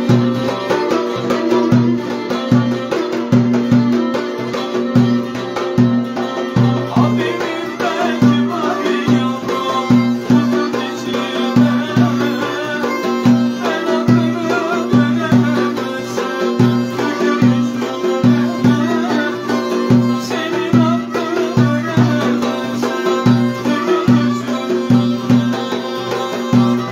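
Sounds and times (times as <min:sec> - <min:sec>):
frame drum thumps: 0:00.0 - 0:26.9
violin: 0:00.0 - 0:26.9.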